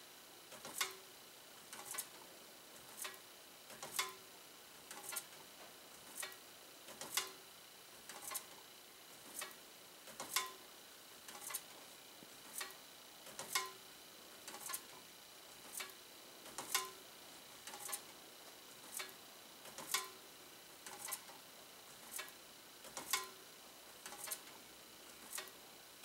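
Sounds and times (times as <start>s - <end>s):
fan blade ticking on paper tag: 22.1s - 23.4s.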